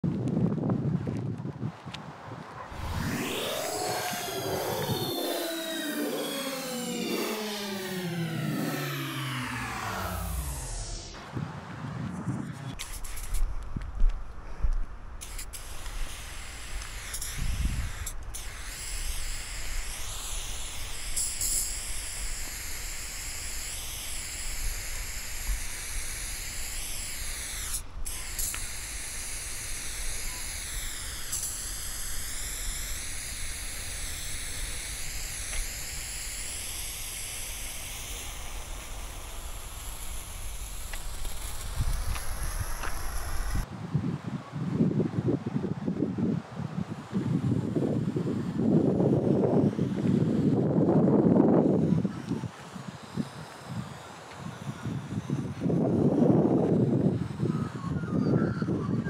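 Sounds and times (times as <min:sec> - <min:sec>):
spray paint can hissing: 0:12.7 - 0:13.5, 0:15.2 - 0:43.7.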